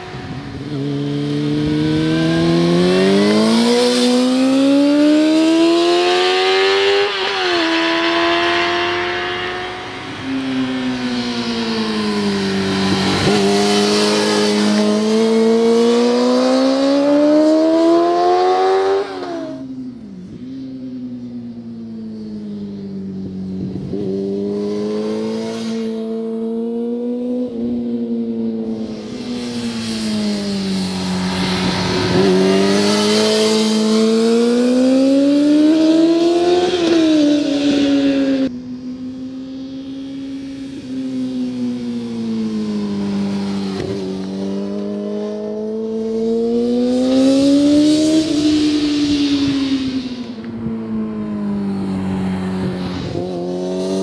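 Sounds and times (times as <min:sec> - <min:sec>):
motorcycle engine revving high: 0:00.0 - 0:20.1, 0:23.2 - 0:54.0.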